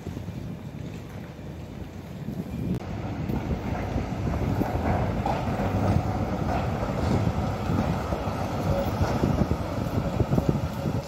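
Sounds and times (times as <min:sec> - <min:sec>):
wind buffeting microphone: 0:00.0 - 0:11.0
tram rumbling by: 0:02.5 - 0:11.0.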